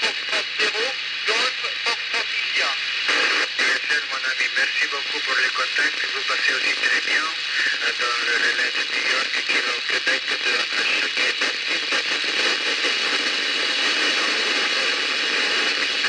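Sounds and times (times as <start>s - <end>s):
radio static hiss: 0.0s - 16.0s.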